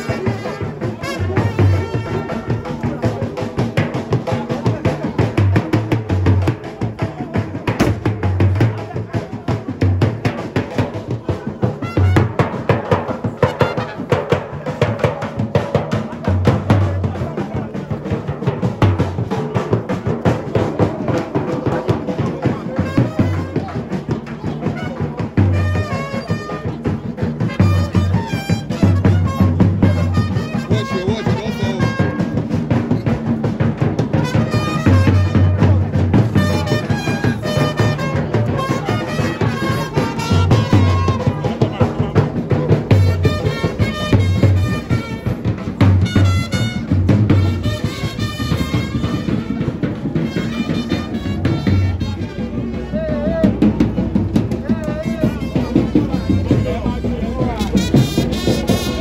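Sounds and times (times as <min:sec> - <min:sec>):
drums sharp strikes: 0:00.0 - 0:59.0
bass drum thumps: 0:03.7 - 0:09.0.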